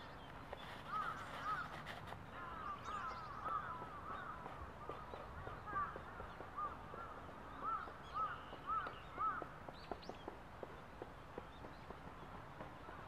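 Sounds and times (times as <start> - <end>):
crows cawing: 0.8 - 9.7.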